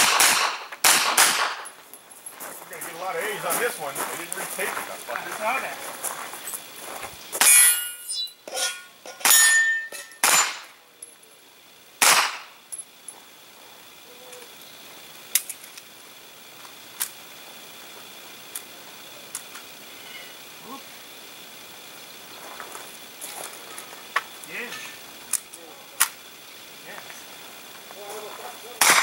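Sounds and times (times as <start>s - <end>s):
faint sharp gunshot reports: 0.0s - 1.6s
gunshots: 0.0s - 1.7s, 10.2s - 10.7s, 12.0s - 12.5s, 28.8s - 29.0s.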